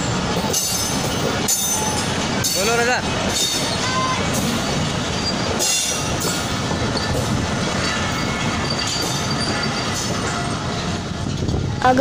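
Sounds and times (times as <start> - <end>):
train wheels rumbling on rail: 0.0 - 12.0
faint wheel squeals: 7.8 - 10.5.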